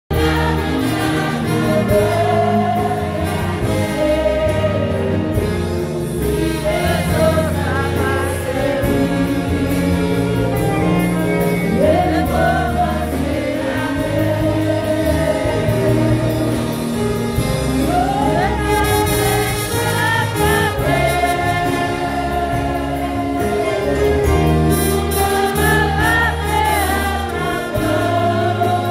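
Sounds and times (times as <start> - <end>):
congregation and choir singing: 0.1 - 28.9
instrumental accompaniment: 0.1 - 28.9
low bass line: 0.1 - 28.9.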